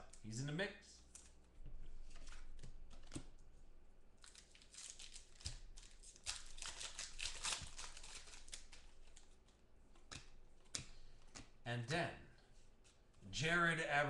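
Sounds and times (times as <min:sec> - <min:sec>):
plastic sleeve crinkling: 0:04.2 - 0:11.4.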